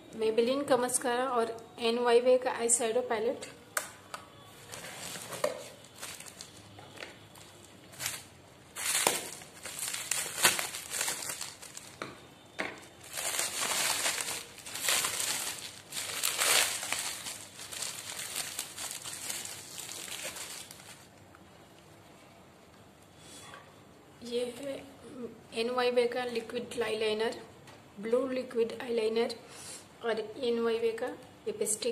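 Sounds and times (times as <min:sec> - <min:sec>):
packaging crinkling and rustling: 0:04.5 - 0:21.2.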